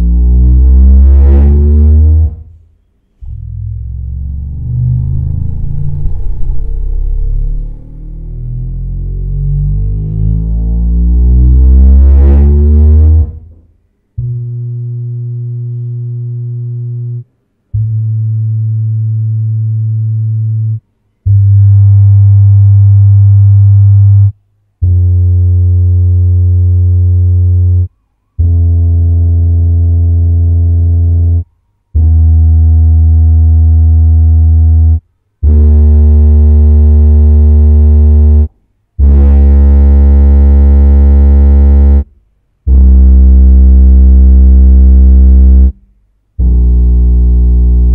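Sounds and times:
subwoofer rising sweep tone: 0:00.0 - 0:02.5, 0:03.2 - 0:13.6, 0:32.0 - 0:42.0, 0:42.7 - 0:45.7
steady low test tones: 0:03.2 - 0:13.6, 0:38.4 - 0:42.1.

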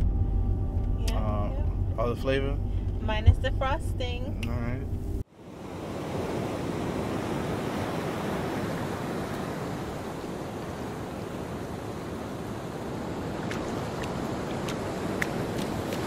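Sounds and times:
ocean waves washing: 0:05.2 - 0:16.0.

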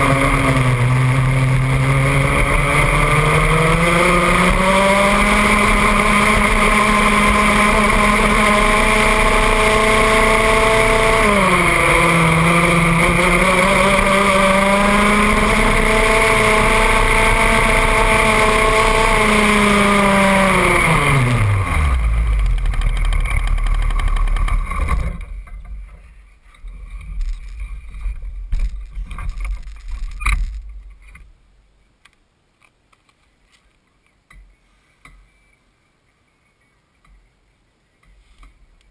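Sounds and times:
two-stroke kart engine revving: 0:00.0 - 0:25.4
knocks and rattles: 0:22.4 - 0:26.0, 0:26.6 - 0:31.3.

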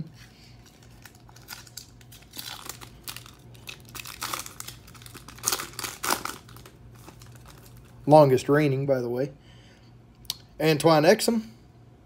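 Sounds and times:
foil wrapper crinkling and tearing: 0:00.4 - 0:08.0.

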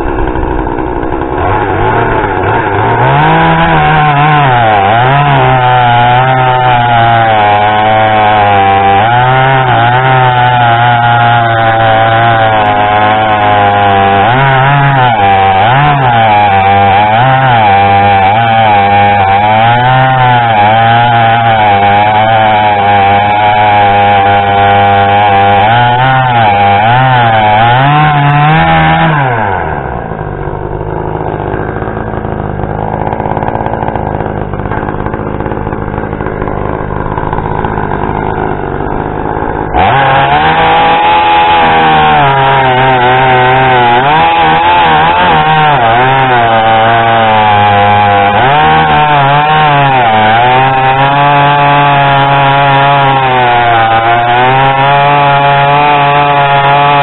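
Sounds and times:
chainsaw cutting log: 0:00.0 - 0:57.0.

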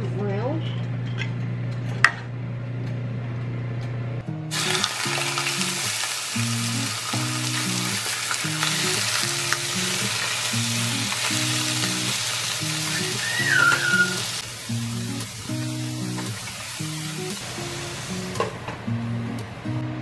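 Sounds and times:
chicken sizzling in hot oil: 0:04.5 - 0:18.4.

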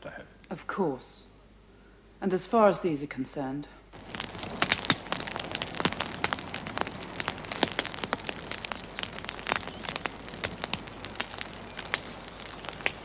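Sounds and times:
steady hiss: 0:03.8 - 0:13.0
irregular crackling and clicking: 0:04.0 - 0:13.0.

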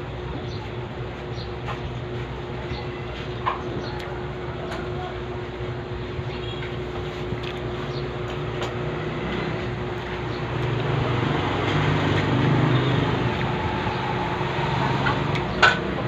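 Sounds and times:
road traffic noise: 0:00.0 - 0:16.0
vehicle engine passing: 0:08.4 - 0:16.0.

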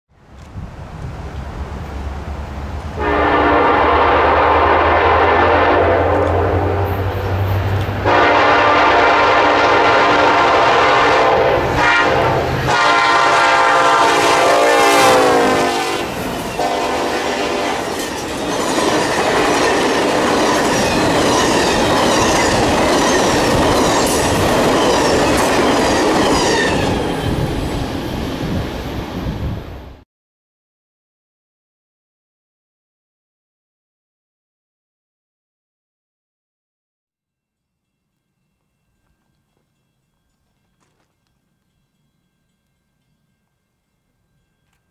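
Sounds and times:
locomotive engines rumbling: 0:00.2 - 0:30.0
locomotive air horn: 0:03.0 - 0:18.0
train wheels clickety-clack: 0:16.1 - 0:29.1, 0:39.0 - 0:41.8.

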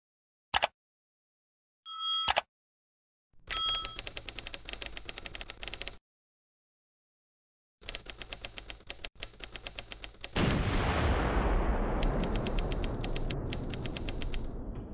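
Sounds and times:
booming hit with low rumble: 0:10.4 - 0:14.9.

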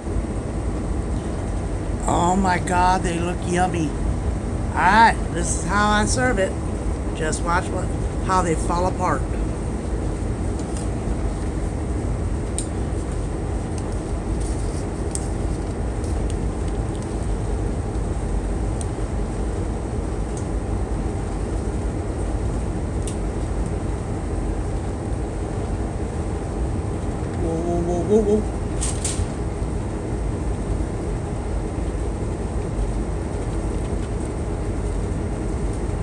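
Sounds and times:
boat diesel engines droning: 0:02.0 - 0:09.6.

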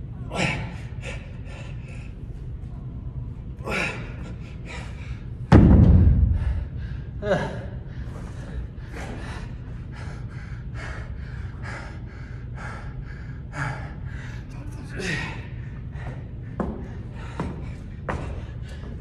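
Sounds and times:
man panting: 0:03.6 - 0:05.4, 0:06.0 - 0:19.0.

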